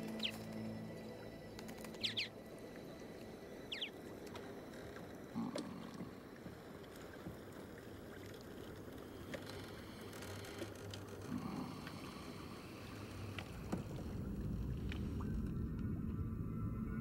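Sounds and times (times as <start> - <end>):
bird chirping: 0.0 - 0.5, 1.8 - 2.3, 3.7 - 4.0
water lapping around boat: 0.0 - 16.1.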